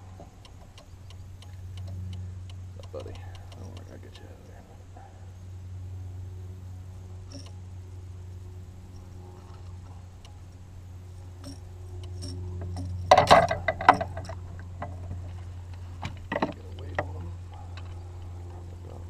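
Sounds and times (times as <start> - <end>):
low steady hum: 0.0 - 19.0
pliers and hooks clicking and jangling: 7.3 - 7.5, 11.4 - 14.4.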